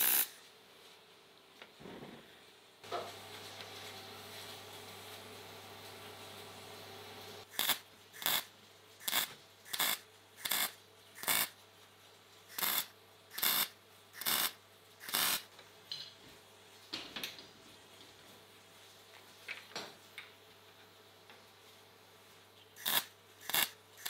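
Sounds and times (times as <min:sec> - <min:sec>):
welder tack weld bursts: 0:00.0 - 0:00.4, 0:07.5 - 0:11.5, 0:12.5 - 0:15.5, 0:22.8 - 0:23.8.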